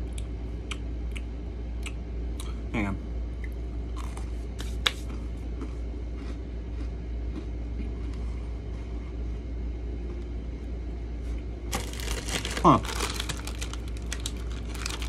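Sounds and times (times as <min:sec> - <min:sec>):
low room hum: 0:00.0 - 0:15.0
cookie being chewed: 0:03.4 - 0:10.2, 0:11.7 - 0:15.0.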